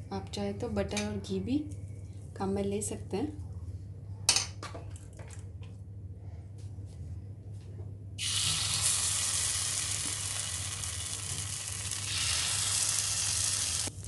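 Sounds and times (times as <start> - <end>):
batter sizzling in a pan: 8.2 - 14.0.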